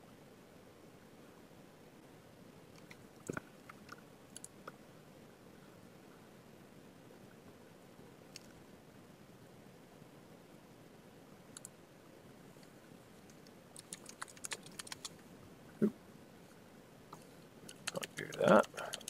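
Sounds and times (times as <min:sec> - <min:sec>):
keyboard typing: 0:02.8 - 0:04.6, 0:13.3 - 0:15.2, 0:17.7 - 0:19.0.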